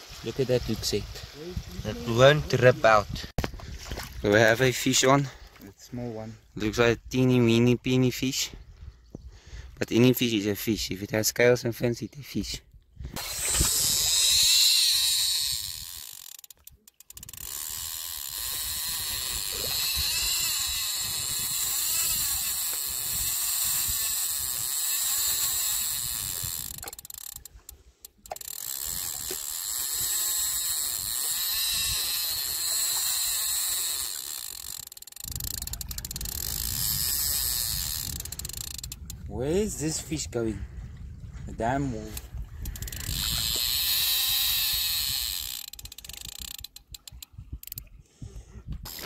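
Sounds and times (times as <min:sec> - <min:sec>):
fishing reel drag ticking: 0:13.2 - 0:39.3, 0:42.1 - 0:47.9.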